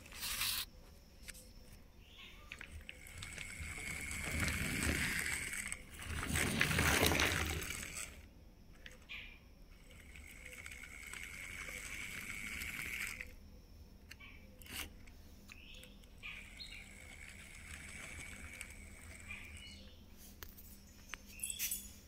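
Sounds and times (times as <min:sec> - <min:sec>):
toy tractor rolling on floor: 0:00.0 - 0:00.7, 0:02.2 - 0:13.4, 0:14.1 - 0:15.1, 0:15.8 - 0:21.1
faint high whirring: 0:00.0 - 0:22.0.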